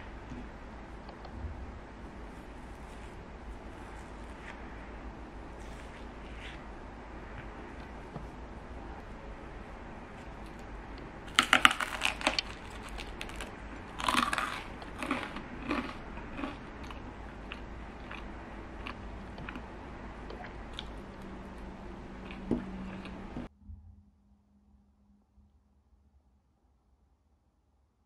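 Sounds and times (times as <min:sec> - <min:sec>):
biting and chewing bread: 0:10.0 - 0:23.4.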